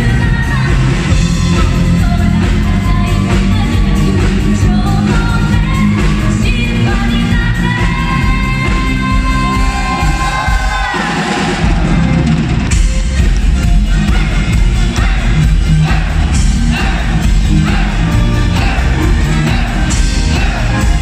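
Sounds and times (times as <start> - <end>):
woman singing: 0.0 - 11.1
live rock band playing: 0.0 - 21.0.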